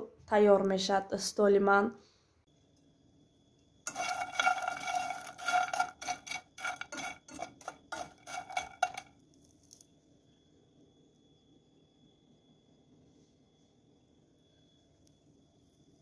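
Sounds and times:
metal spoon scraping in frying pan: 3.9 - 9.1.

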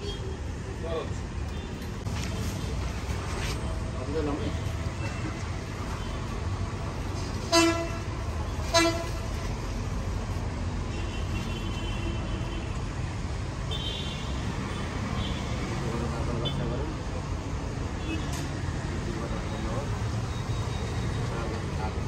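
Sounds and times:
street traffic rumble: 0.0 - 22.0
vehicle horn toots: 7.5 - 8.0, 8.7 - 9.2.

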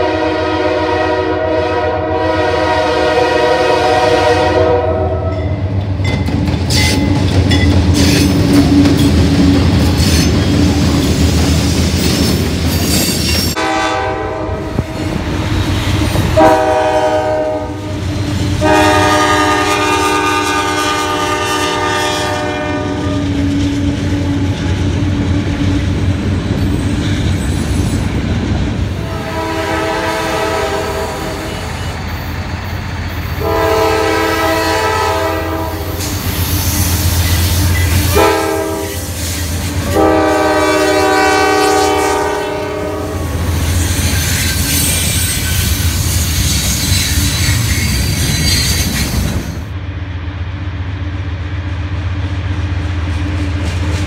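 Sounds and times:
locomotive horn blasts: 0.0 - 5.5, 13.6 - 15.2, 16.2 - 18.0, 18.6 - 23.4, 29.0 - 31.7, 33.4 - 36.0, 38.1 - 39.1, 39.8 - 43.4
train rumbling: 0.0 - 54.0.

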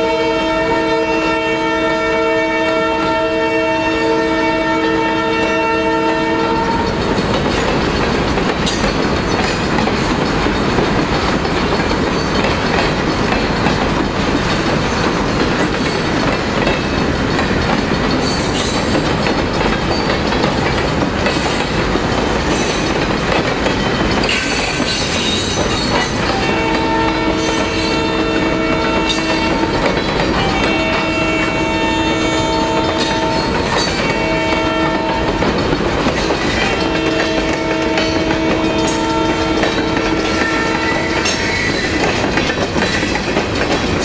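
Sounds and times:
locomotive horn chord: 0.0 - 7.0, 26.3 - 35.4, 36.6 - 41.2
freight train wheels clattering: 2.1 - 44.0.

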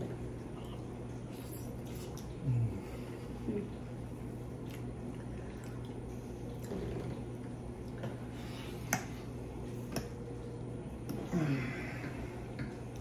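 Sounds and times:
steady low hum: 0.0 - 13.0
wet chewing: 4.5 - 8.2.

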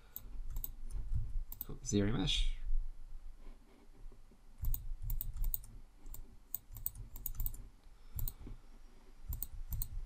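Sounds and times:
keyboard and mouse clicking: 0.1 - 1.7, 4.6 - 8.4, 9.3 - 10.0.

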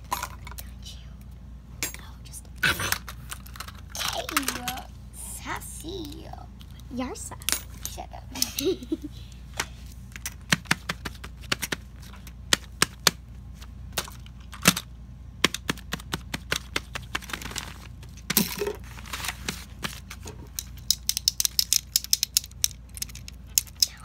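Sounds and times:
plastic fidget toys clicking: 2.9 - 4.9, 20.5 - 24.0.

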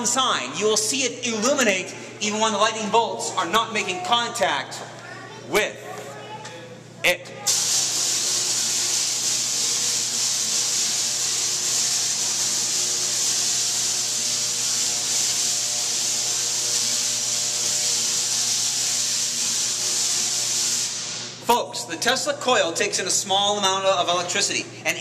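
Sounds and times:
tesla coil buzzing: 7.5 - 21.4.

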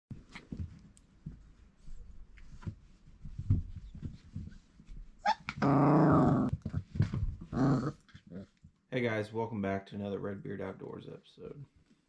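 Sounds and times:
paws scuffling on bedding: 0.1 - 5.5.

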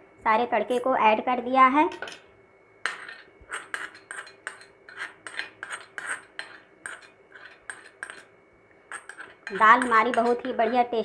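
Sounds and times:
steel spoon scraping a pan: 2.9 - 11.0.

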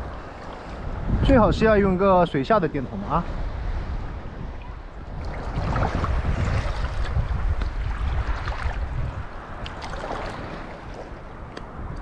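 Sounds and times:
seawater sloshing and churning: 2.9 - 12.0.

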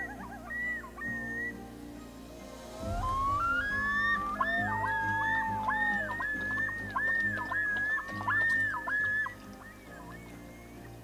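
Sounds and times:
high gliding melody: 0.8 - 8.6
low pulsing bass: 2.6 - 6.0.

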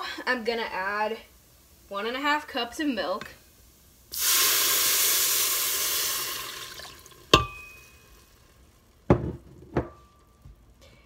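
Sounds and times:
milk hissing in hot pot: 4.0 - 7.4.

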